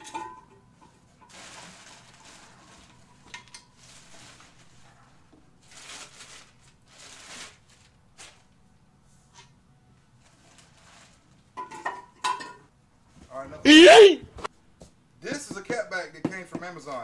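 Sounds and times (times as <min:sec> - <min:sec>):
plastic wrapping crinkling: 0:01.2 - 0:04.9, 0:05.6 - 0:08.6.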